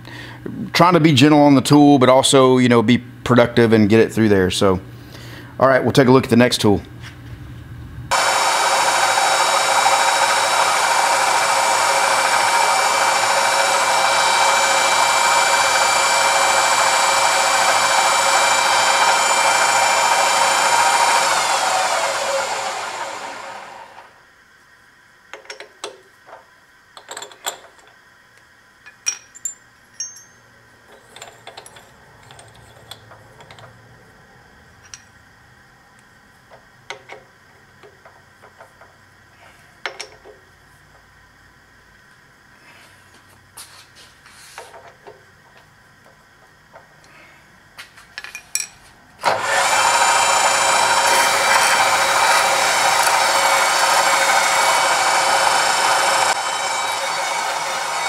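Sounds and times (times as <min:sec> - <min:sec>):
drill press running and spinning down: 0:08.1 - 0:24.2, 0:49.2 - 0:58.0.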